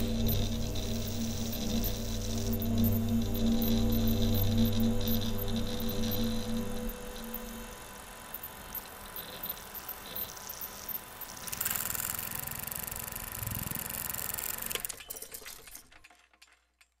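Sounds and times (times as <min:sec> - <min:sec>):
film projector clatter: 0:08.3 - 0:17.0.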